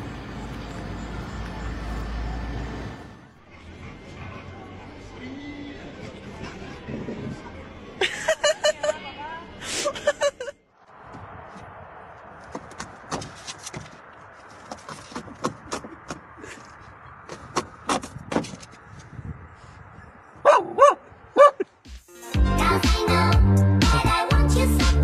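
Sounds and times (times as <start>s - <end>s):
small dog yelping: 20.4s - 21.6s.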